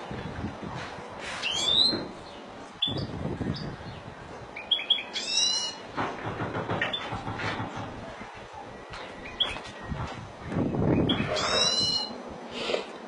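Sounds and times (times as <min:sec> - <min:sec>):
goldfinch singing: 0:04.6 - 0:05.8, 0:10.9 - 0:12.2.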